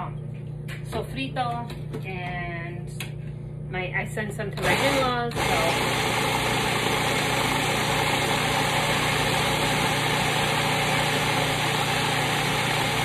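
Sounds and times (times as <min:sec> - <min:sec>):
food processor motor humming: 0:04.6 - 0:13.0.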